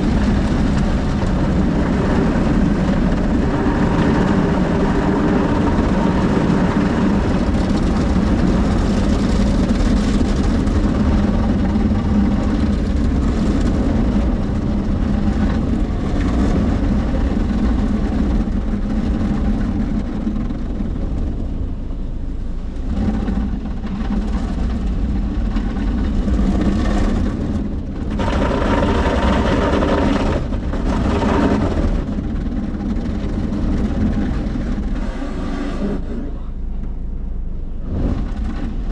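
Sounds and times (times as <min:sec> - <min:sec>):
car wash machine hum: 0:00.0 - 0:38.9
water spraying on car: 0:00.0 - 0:38.9.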